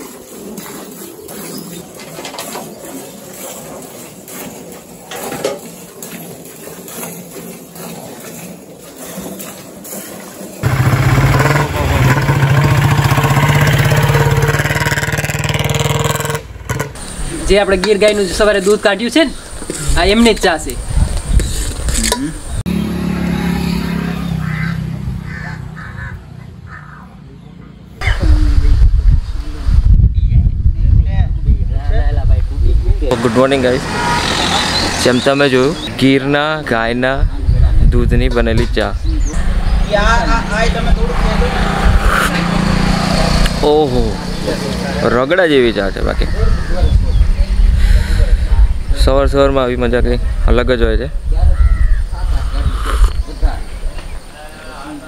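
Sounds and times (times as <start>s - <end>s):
crow cawing: 24.4s - 27.0s
loud low rumble: 39.3s - 44.4s.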